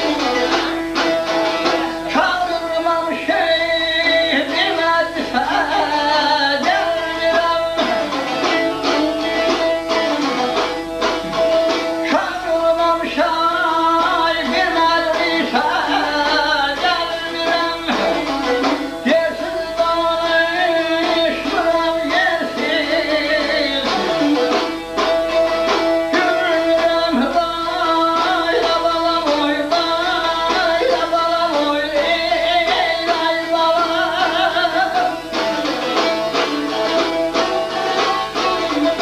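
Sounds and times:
person singing: 0:00.0 - 0:24.8, 0:25.4 - 0:39.0
lute strummed rapidly: 0:00.0 - 0:39.0.

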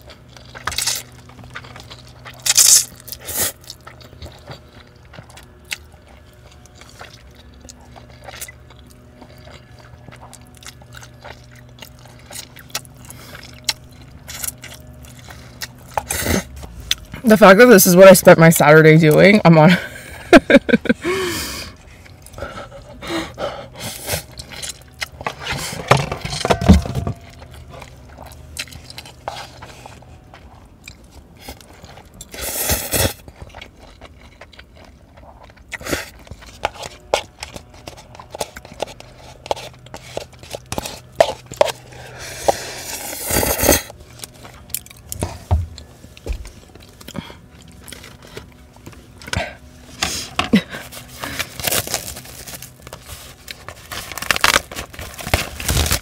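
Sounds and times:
wet chewing: 0:00.0 - 0:17.3, 0:20.0 - 0:26.5, 0:27.1 - 0:56.0
noodle slurping: 0:35.7 - 0:43.9.

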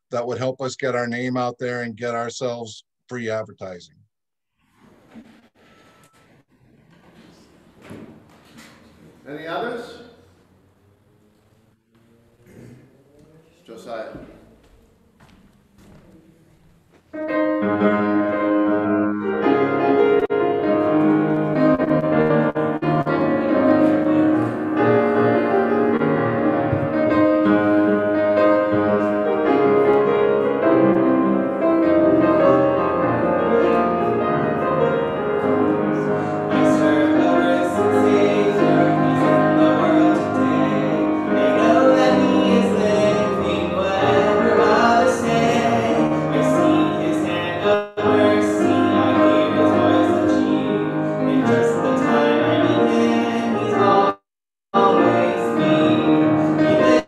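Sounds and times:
slow piano piece: 0:14.3 - 0:54.2, 0:54.8 - 0:57.0.

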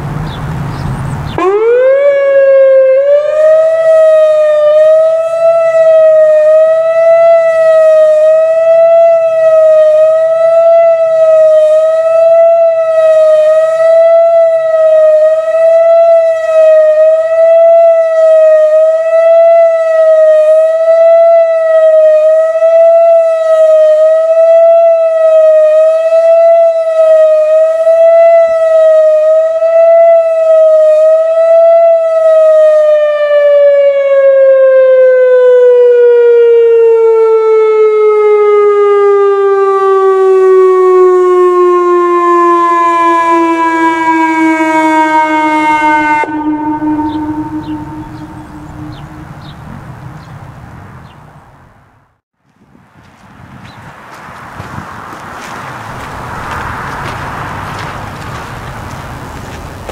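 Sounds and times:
warning siren wailing: 0:01.3 - 0:50.2, 0:55.7 - 0:59.9.

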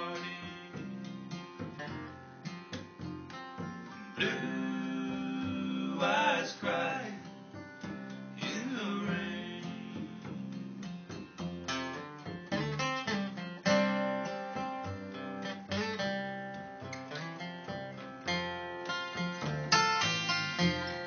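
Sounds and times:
acoustic guitar strumming: 0:00.0 - 0:21.0.

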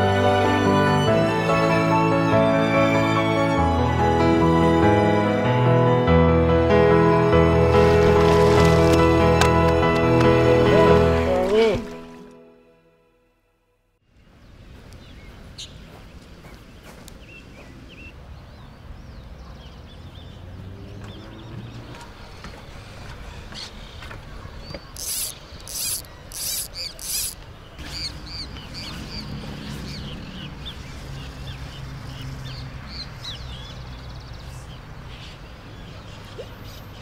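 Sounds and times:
birds chirping: 0:14.2 - 0:37.0
fly reel buzzing: 0:25.0 - 0:27.4.

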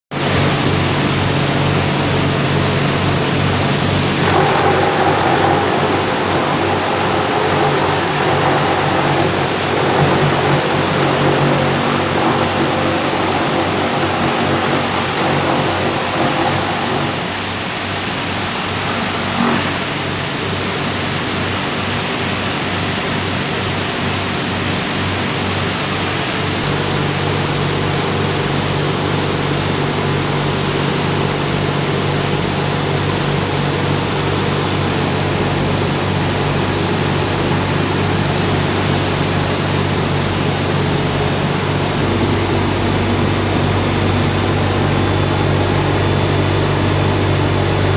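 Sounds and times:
air rush noise: 0:00.2 - 0:21.2, 0:36.2 - 0:47.9
machinery grinding: 0:02.5 - 0:17.7, 0:33.3 - 0:47.9.

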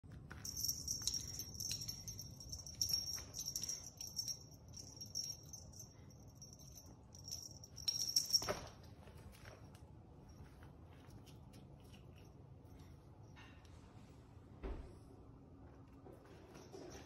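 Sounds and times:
small jingle bell jingling: 0:00.3 - 0:13.0.

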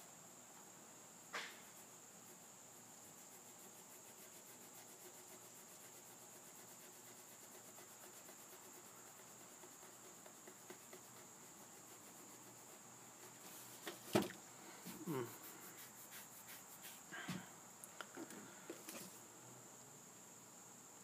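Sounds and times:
cricket chirping: 0:00.0 - 0:21.0
sharp knock: 0:01.3 - 0:01.6.

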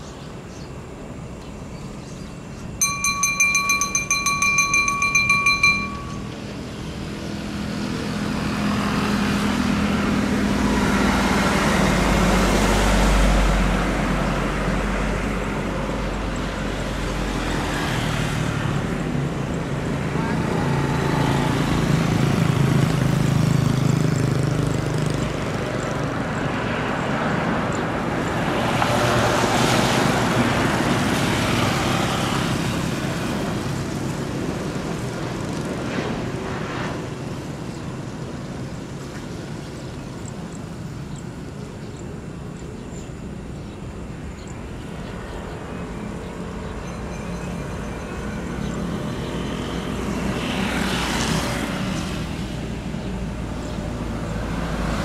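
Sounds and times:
engine and spray rushing: 0:07.3 - 0:40.8
jet engines humming: 0:33.5 - 0:46.7.

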